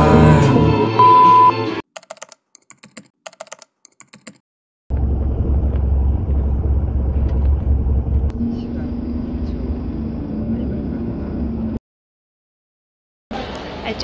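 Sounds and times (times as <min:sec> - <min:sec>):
karaoke music: 0:00.0 - 0:01.8
loud steady beep: 0:01.0 - 0:01.6
keyboard typing clicks: 0:02.0 - 0:04.4
moving vehicle rumble: 0:04.9 - 0:11.8.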